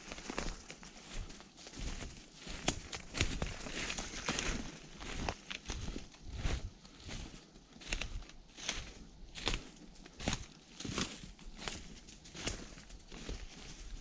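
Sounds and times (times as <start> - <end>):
footsteps in dry leaves: 0.0 - 14.0.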